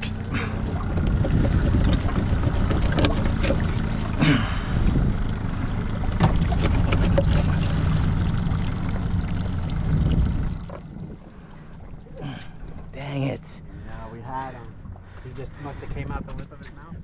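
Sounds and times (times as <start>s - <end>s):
boat motor humming: 0.0s - 17.0s
wind buffeting microphone: 0.6s - 3.9s, 4.6s - 8.5s, 9.7s - 11.9s, 14.7s - 17.0s.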